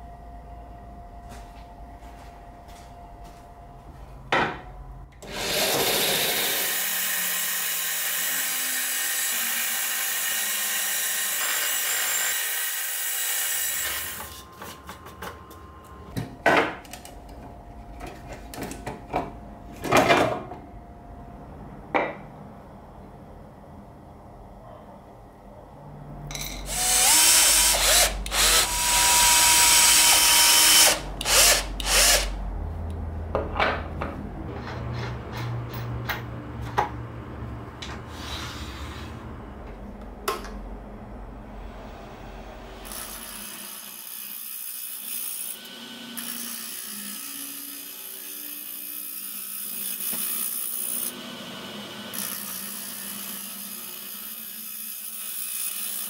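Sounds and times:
power drill driving screws: 5.2 - 13.0, 26.7 - 32.4.

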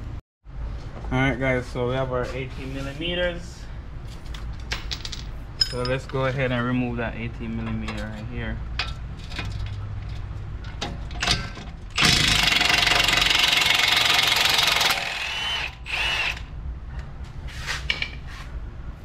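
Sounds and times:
impact wrench hammering: 11.2 - 16.5.

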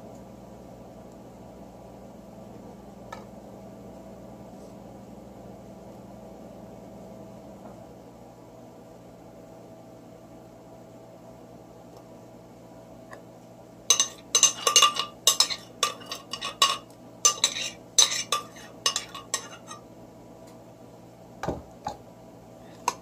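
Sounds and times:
metal utensil scraping blender jar: 13.9 - 19.8.

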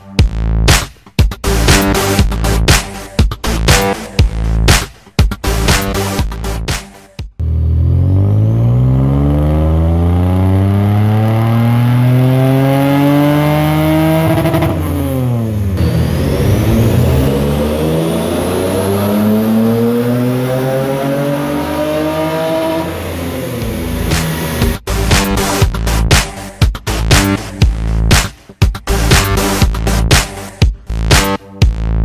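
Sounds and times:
car engine revving: 7.4 - 26.0.

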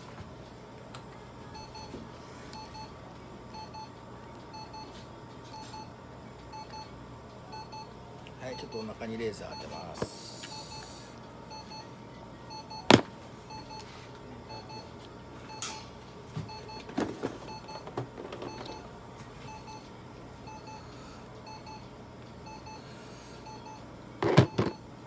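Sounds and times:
faint repeating beeps: 1.5 - 2.0, 2.6 - 3.9, 4.5 - 5.9, 6.5 - 6.9, 7.5 - 11.9, 12.5 - 13.9, 14.5 - 14.9, 19.5 - 22.8.

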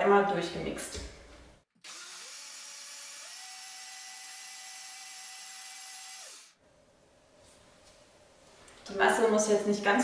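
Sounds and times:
blender motor whining: 1.8 - 6.6.

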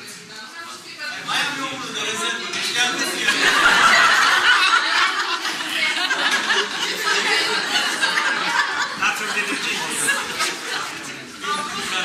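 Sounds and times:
voices chattering: 0.0 - 12.0
people laughing: 2.8 - 12.0.

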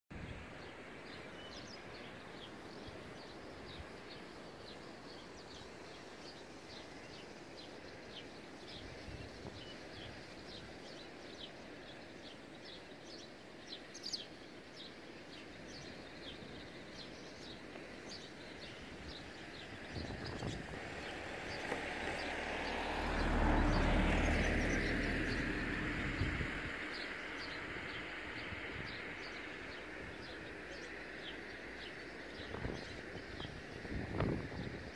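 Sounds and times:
steady background hiss: 0.2 - 20.2
small birds chirping: 0.6 - 22.4, 23.2 - 34.9.

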